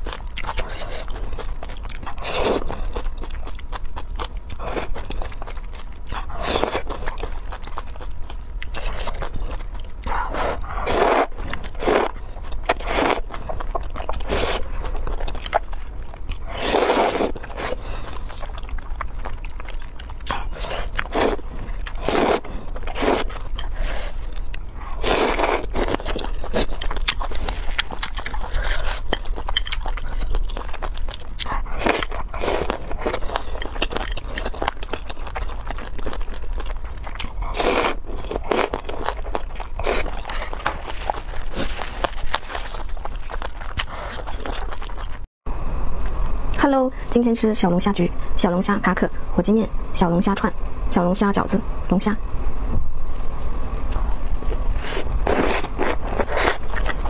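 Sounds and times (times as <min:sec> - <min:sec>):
chewing: 0:00.0 - 0:45.3, 0:53.7 - 0:57.0
slurping noodles: 0:10.3 - 0:12.1, 0:12.7 - 0:13.2, 0:16.4 - 0:18.4, 0:20.4 - 0:24.3, 0:24.9 - 0:27.8, 0:54.8 - 0:57.0.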